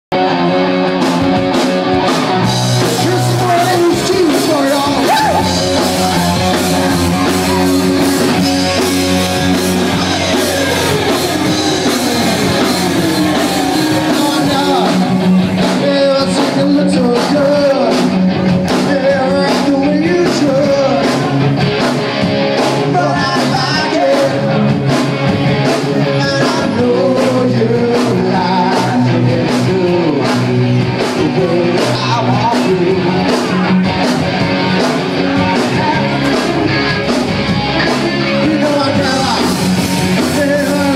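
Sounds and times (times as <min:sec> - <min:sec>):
drum kit: 0:00.1 - 0:40.9
electric guitar: 0:00.1 - 0:40.9
person singing: 0:02.0 - 0:21.4, 0:22.6 - 0:24.7, 0:26.0 - 0:33.8, 0:34.6 - 0:40.9.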